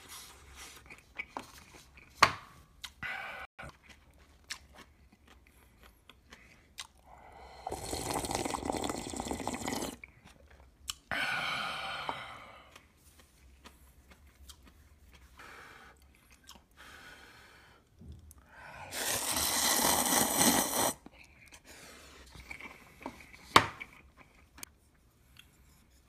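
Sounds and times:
chewing: 3.6s - 7.2s, 7.8s - 11.1s, 12.6s - 16.8s, 22.2s - 25.7s
slurping noodles: 7.3s - 10.1s, 18.9s - 21.1s.

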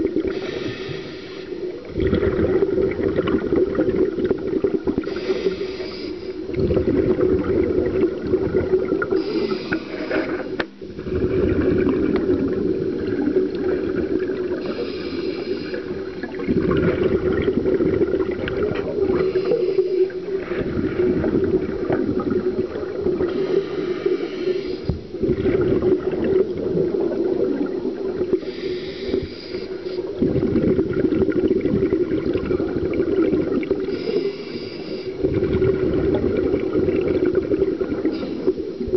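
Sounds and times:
exhaled bubbles rumbling: 0.0s - 38.9s
hissy regulator breath: 0.3s - 1.7s, 5.1s - 6.5s, 9.2s - 10.7s, 14.6s - 16.0s, 19.1s - 20.2s, 23.3s - 25.1s, 28.4s - 30.1s, 33.9s - 35.2s.

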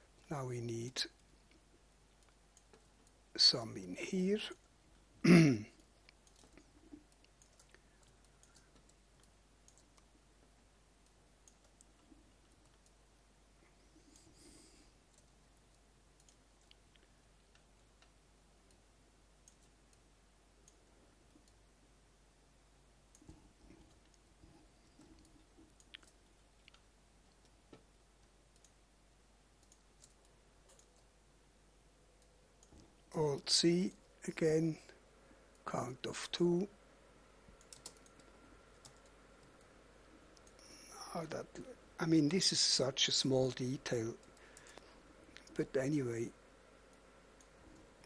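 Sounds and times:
person speaking: 0.2s - 1.2s, 3.3s - 5.8s, 33.1s - 35.0s, 35.6s - 36.8s, 40.5s - 46.4s
computer mouse clicks: 5.8s - 10.1s, 11.0s - 13.0s, 15.1s - 18.8s, 19.4s - 20.0s, 24.9s - 28.8s, 29.6s - 31.1s, 37.6s - 39.7s, 40.3s - 40.8s.

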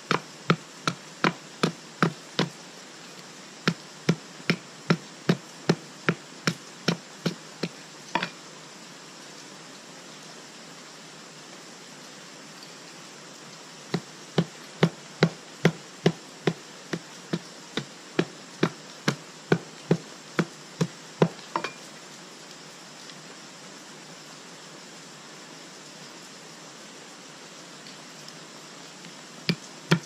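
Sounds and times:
stone knocking on wood: 0.0s - 2.6s, 3.7s - 8.4s, 13.9s - 21.8s, 29.5s - 30.0s.

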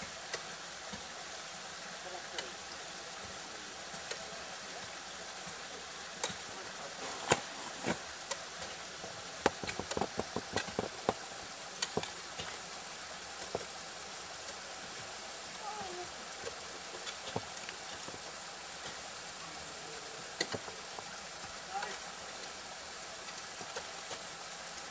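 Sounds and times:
steady hiss: 0.0s - 24.9s.

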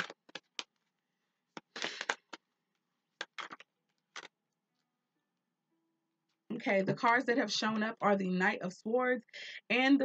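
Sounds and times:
cards being shuffled: 1.5s - 2.4s, 3.2s - 4.3s.

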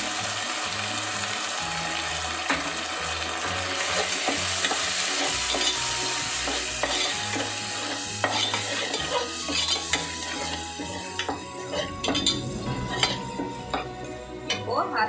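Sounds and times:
spices sizzling in hot oil: 0.0s - 14.6s
ladle scraping a metal pot: 11.6s - 13.9s.

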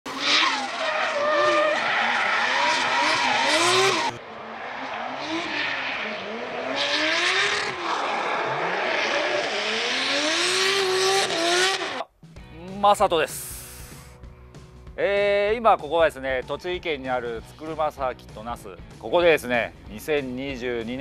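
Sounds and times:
car engine revving: 0.1s - 12.1s.

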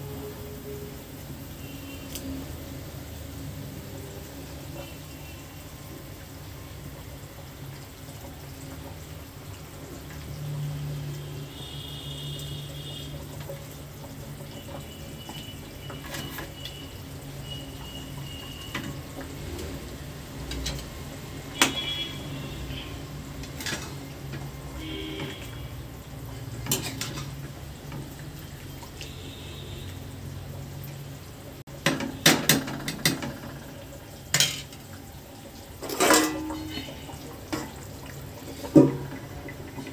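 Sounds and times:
steel cookware clinking: 26.6s - 27.4s, 34.3s - 34.8s, 35.8s - 37.8s.

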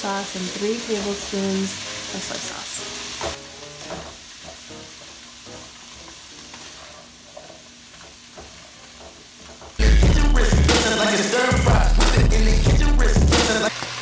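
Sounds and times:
vegetables sizzling in a wok: 0.0s - 14.0s
spatula scraping a wok: 6.0s - 8.9s
loud music with deep bass beat: 9.8s - 13.7s.

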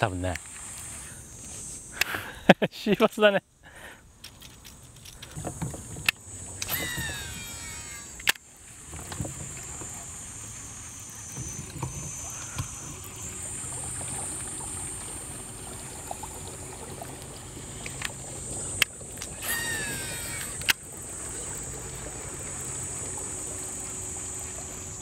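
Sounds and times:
water trickling: 4.3s - 25.0s
high buzz: 6.3s - 25.0s
falling whistle: 6.6s - 8.2s, 19.4s - 20.6s
sharp clicks: 7.9s - 8.4s
low engine hum: 8.5s - 19.4s, 20.7s - 25.0s.

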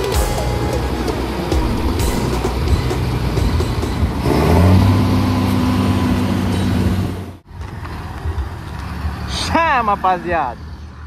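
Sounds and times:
truck diesel engine running: 0.0s - 7.4s.

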